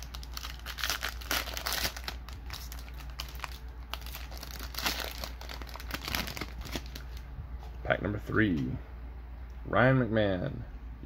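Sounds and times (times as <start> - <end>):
foil wrapper crinkling: 0.0 - 7.2.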